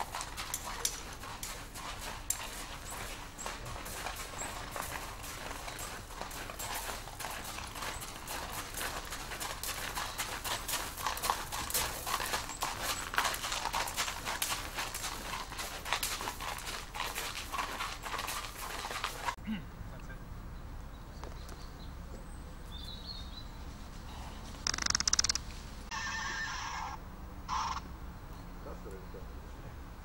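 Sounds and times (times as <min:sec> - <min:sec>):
horse hooves clopping on hard ground: 0:00.0 - 0:19.4.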